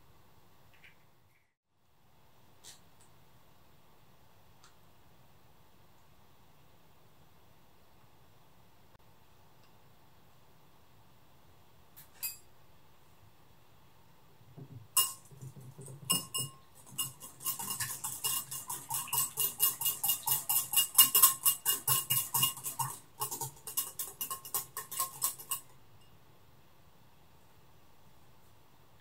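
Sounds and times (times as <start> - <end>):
bowl ringing faintly: 15.0 - 15.3, 16.1 - 18.4
whisk clinking against glass bowl: 15.0 - 26.1.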